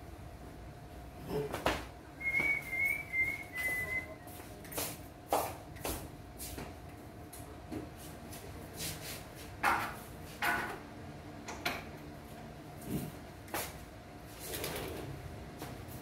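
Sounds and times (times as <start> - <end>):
faint steady hum: 0.0 - 9.4.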